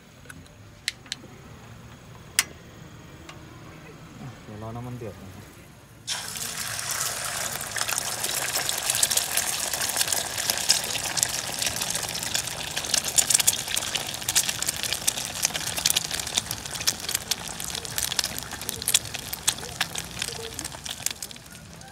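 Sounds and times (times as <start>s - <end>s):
crackle of spitting oil: 6.0s - 21.9s
egg sizzling in hot oil: 6.1s - 21.9s.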